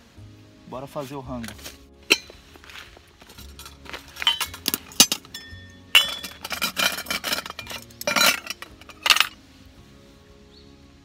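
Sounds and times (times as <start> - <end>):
cooking gear clinking: 1.4 - 2.4, 3.2 - 9.4
rattling and rustling: 1.5 - 9.4.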